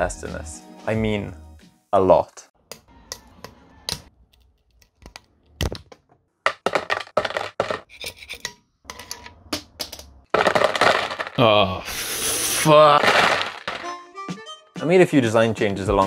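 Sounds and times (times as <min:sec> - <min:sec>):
parts clattering into plastic tub: 0:06.5 - 0:07.9, 0:10.3 - 0:11.4, 0:13.0 - 0:13.9.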